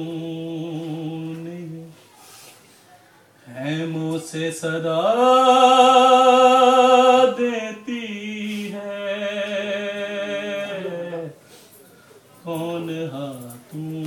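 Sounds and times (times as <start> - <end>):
man chanting unaccompanied: 3.5 - 11.4, 12.4 - 14.0.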